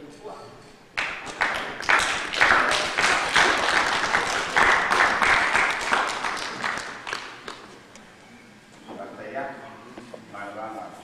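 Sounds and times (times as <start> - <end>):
crowd applauding: 1.0 - 7.7.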